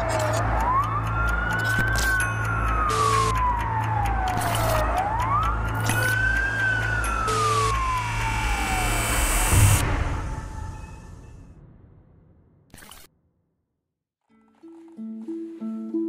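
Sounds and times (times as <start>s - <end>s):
emergency siren wailing: 0.0s - 11.3s
low pulsing drone: 0.0s - 11.9s.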